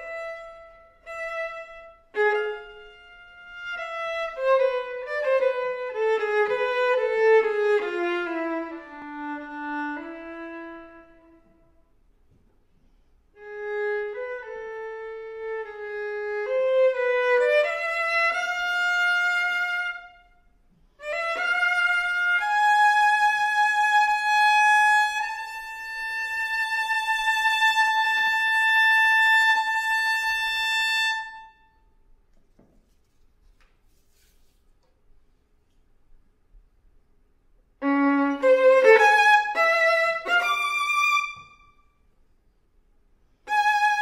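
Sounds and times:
solo violin playing: 0:00.0 - 0:11.8, 0:13.3 - 0:31.8, 0:37.8 - 0:42.0, 0:43.4 - 0:44.0.

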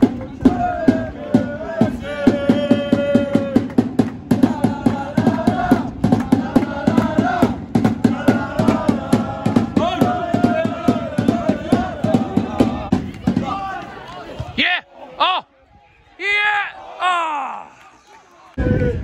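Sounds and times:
steady drum beat: 0:00.0 - 0:13.7
football supporters chanting: 0:00.0 - 0:18.6.

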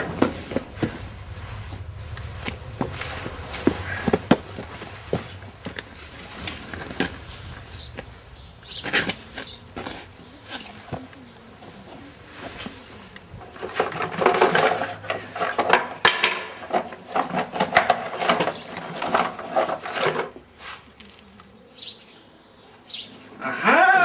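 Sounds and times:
wooden furniture clattering and knocking: 0:13.4 - 0:20.4.

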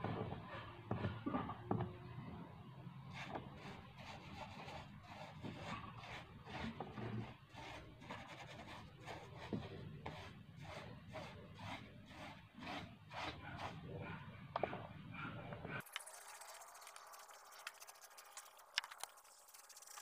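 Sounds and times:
paintbrush rubbing on wood: 0:03.2 - 0:13.8, 0:15.8 - 0:20.0.

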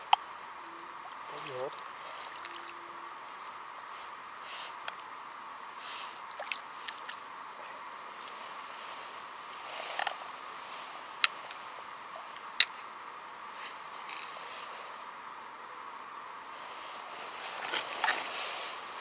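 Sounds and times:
faint outdoor hiss: 0:00.0 - 0:19.0.

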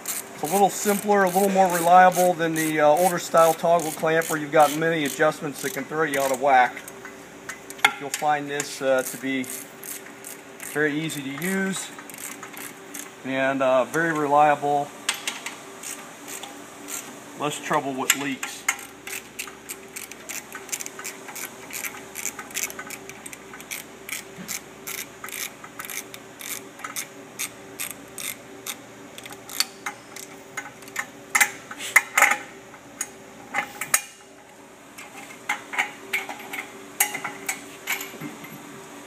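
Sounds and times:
ratchet wrench clicking: 0:00.0 - 0:06.4, 0:09.0 - 0:10.8, 0:12.1 - 0:13.1, 0:18.7 - 0:31.0.

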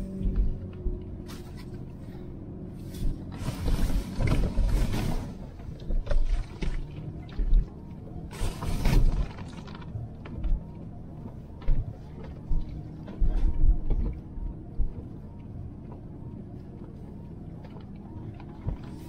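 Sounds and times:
thumps knocks and creaks of car body: 0:00.0 - 0:01.8, 0:08.7 - 0:16.1
car engine running low: 0:00.0 - 0:19.0.

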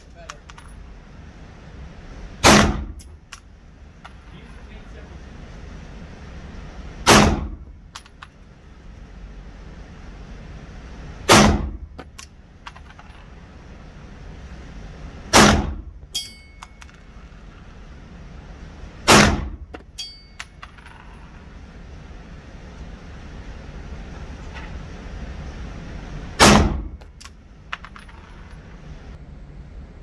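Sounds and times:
pistol shots: 0:02.4 - 0:03.0, 0:07.0 - 0:07.6, 0:11.3 - 0:11.8, 0:15.3 - 0:15.8, 0:19.0 - 0:19.6, 0:26.4 - 0:27.0
metallic clinks: 0:16.1 - 0:17.2, 0:19.9 - 0:21.4.

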